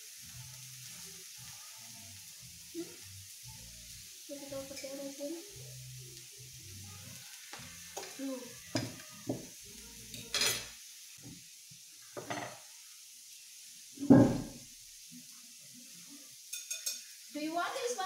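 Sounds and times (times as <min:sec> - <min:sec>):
meat sizzling on hot plate: 0:00.0 - 0:18.0
utensils and plates clattering: 0:10.1 - 0:10.8, 0:12.2 - 0:12.6, 0:16.5 - 0:17.1
loud thump: 0:14.0 - 0:14.6.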